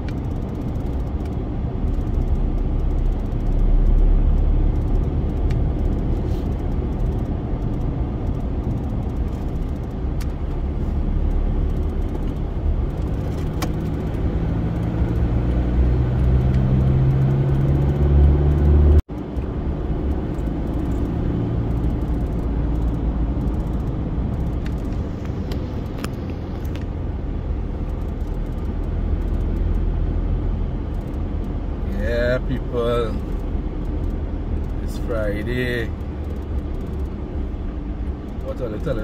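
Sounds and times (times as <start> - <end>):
car road rumble: 0.0 - 39.0
engine hum: 0.0 - 39.0.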